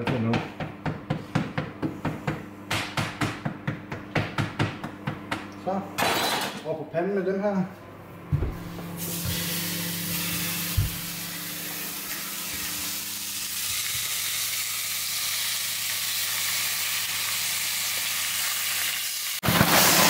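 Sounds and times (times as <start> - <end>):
meat patties sizzling: 9.0 - 20.0.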